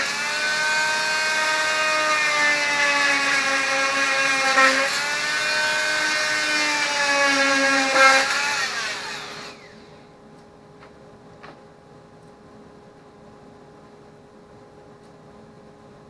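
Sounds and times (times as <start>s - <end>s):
router spindle high whine: 0.0s - 10.1s.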